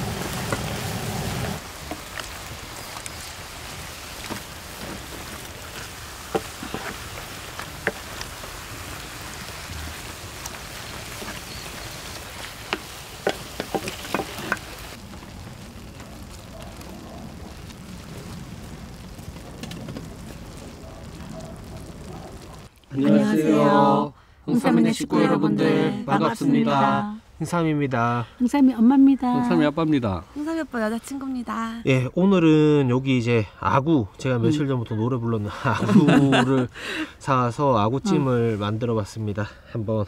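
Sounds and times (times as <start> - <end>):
food sizzling on metal tray: 0.0 - 22.7.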